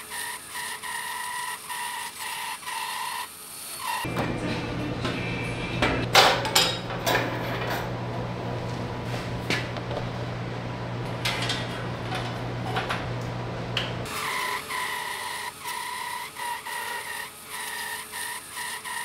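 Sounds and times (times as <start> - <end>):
bandsaw cutting wood whine: 0.0 - 6.1, 14.0 - 19.0
steady low hum: 4.1 - 14.1.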